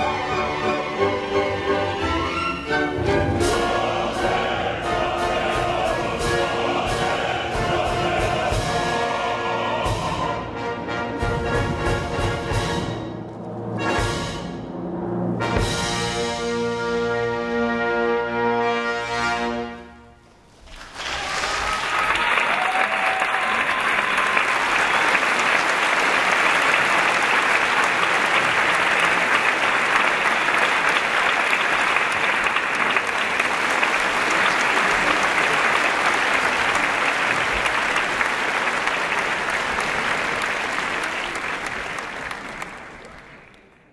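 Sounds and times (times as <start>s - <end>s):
audience applauding: 20.6s - 43.9s.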